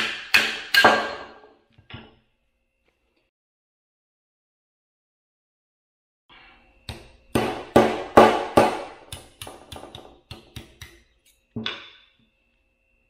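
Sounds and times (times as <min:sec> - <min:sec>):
hammer striking steel punch: 0:00.0 - 0:01.5, 0:06.9 - 0:11.0.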